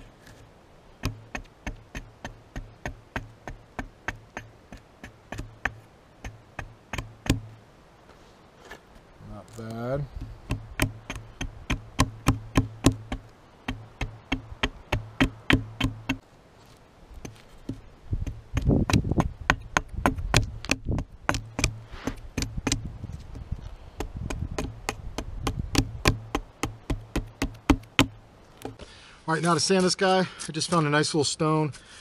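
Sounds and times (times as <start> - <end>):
axe chopping wood: 1.0 - 7.5, 10.2 - 16.2, 17.2 - 22.9, 24.0 - 28.8.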